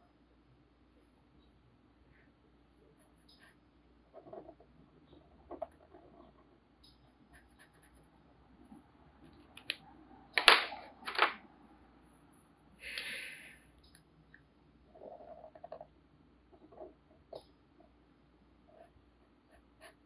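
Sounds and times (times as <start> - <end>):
marker scratching on paper: 7.3 - 8.1, 18.7 - 20.0.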